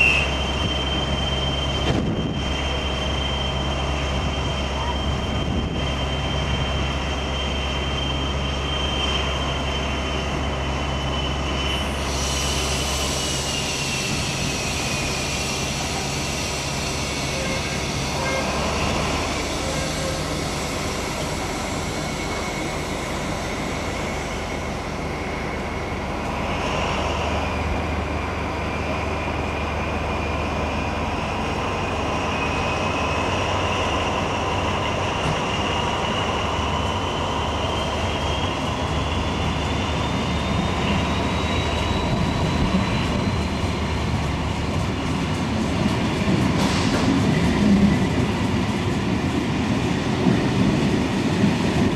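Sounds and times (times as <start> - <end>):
train wheels knocking on rails: 44.2 - 49.5.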